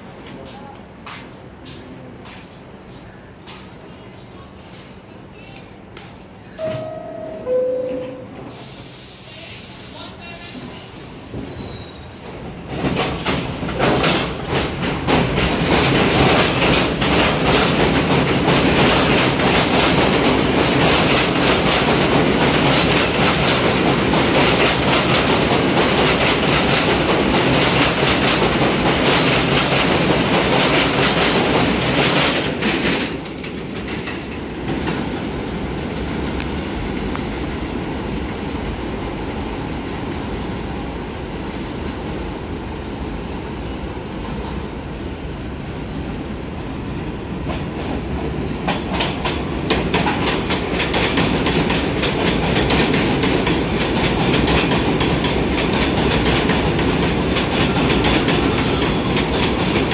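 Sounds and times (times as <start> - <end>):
subway train running past: 0.0 - 59.9
wheels clacking over rails: 12.3 - 35.2, 48.6 - 59.9.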